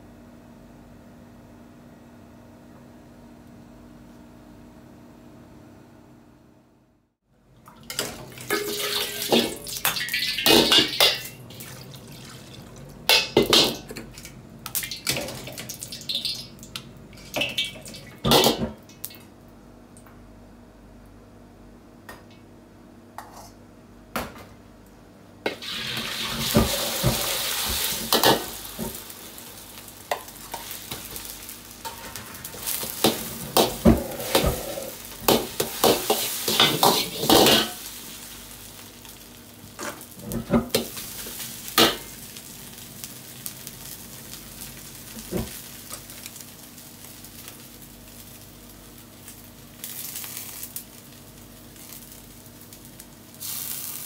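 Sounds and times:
egg sizzling in hot oil: 8.2 - 13.8, 14.7 - 18.4, 25.5 - 54.0
metal ladle scraping wok: 33.0 - 37.8.

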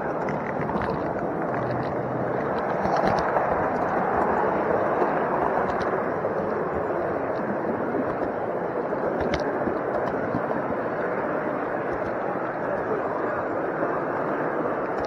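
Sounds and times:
wheels clicking over rail joints: 0.0 - 10.9.

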